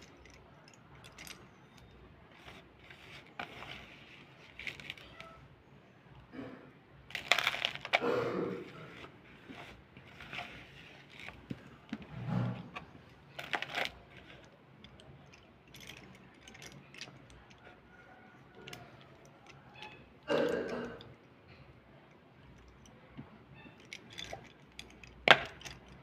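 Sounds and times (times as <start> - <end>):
slate pencils clicking together: 0.0 - 5.3, 13.3 - 17.8, 23.8 - 26.0.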